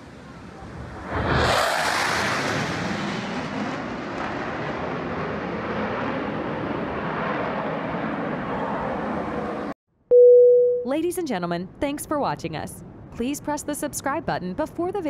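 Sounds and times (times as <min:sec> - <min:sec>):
jet low pass rushing noise: 0:00.0 - 0:09.8.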